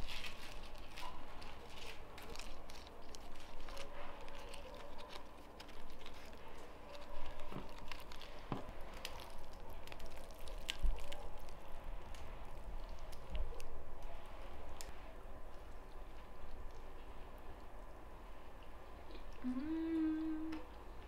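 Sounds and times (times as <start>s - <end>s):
meat tearing: 0.0s - 13.7s
roasted skin crackling: 0.0s - 18.0s.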